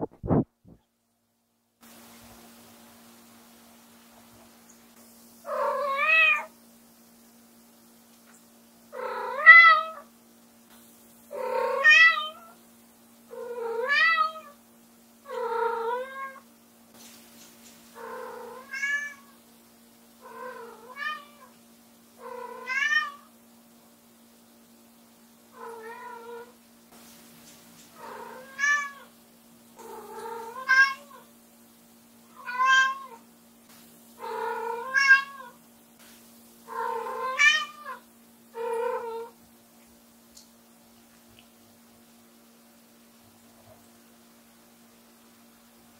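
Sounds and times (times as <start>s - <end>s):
cat meowing loudly: 5.5s - 6.5s, 9.1s - 10.1s, 18.6s - 19.3s, 22.5s - 23.3s, 28.2s - 29.1s, 30.0s - 31.2s, 32.3s - 33.2s, 34.3s - 35.6s, 36.7s - 38.0s.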